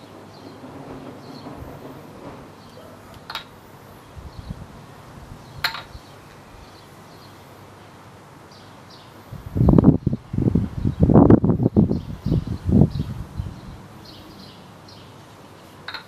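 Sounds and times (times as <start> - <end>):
wooden ball clacking on handle: 3.1 - 3.6, 5.6 - 6.0.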